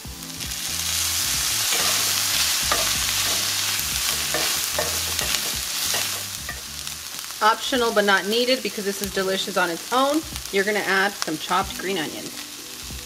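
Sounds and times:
chicken sizzling in a skillet: 0.0 - 13.0
spatula scraping a pan: 1.5 - 6.7.

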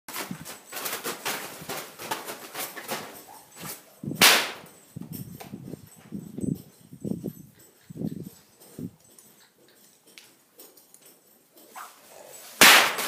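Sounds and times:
plastic tarp crackling under hooves: 0.1 - 4.9.

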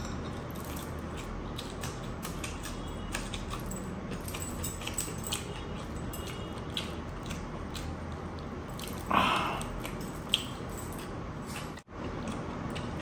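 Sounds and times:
metal rings and bracelets jangling: 0.0 - 1.0, 3.5 - 6.6, 10.0 - 11.2.

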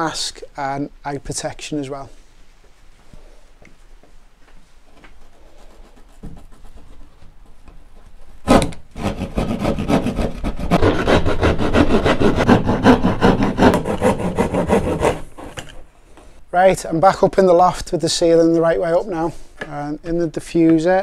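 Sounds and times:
saw hitting through plasterboard: 8.4 - 15.8
saw cutting plasterboard: 8.5 - 15.8.

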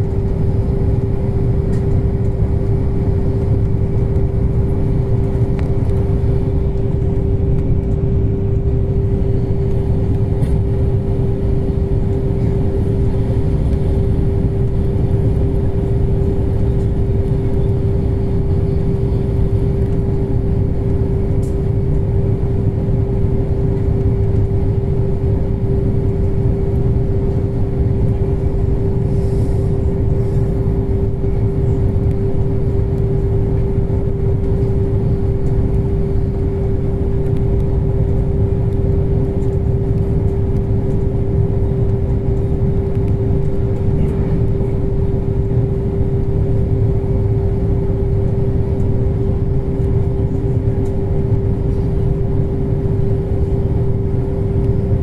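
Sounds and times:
mid-pitched hum: 0.0 - 55.0
train running rumble: 0.0 - 55.0.

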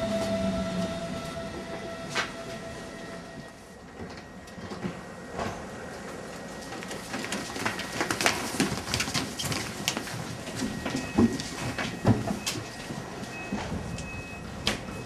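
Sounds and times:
electric train hum: 0.0 - 15.0
footsteps and shuffling: 4.6 - 14.9.

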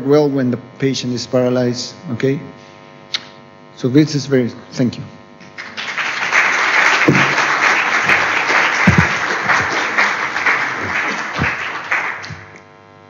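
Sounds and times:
audience applauding: 5.5 - 12.6.

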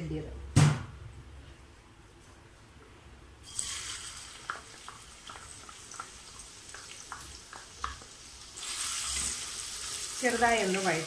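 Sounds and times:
ginger sizzling in hot oil: 3.4 - 11.0.

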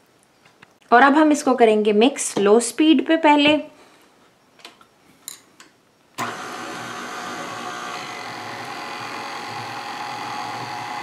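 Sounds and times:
stand mixer motor running: 6.2 - 11.0.

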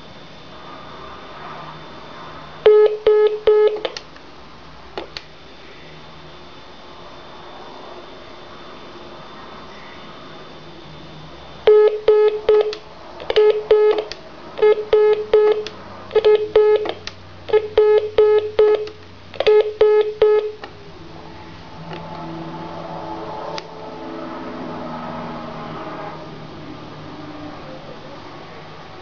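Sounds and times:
short telephone beeps: 2.7 - 3.8, 11.7 - 16.9, 17.5 - 20.6.

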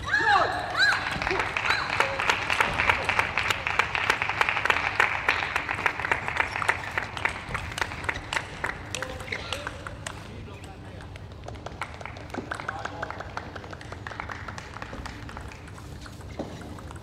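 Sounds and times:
crowd applause: 0.9 - 9.8.

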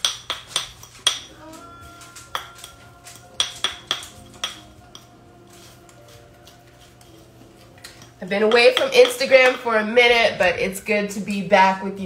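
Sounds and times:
metal whisk clinking on ceramic bowl: 0.0 - 1.4, 2.1 - 5.2
soft stirring of batter: 0.8 - 9.6.

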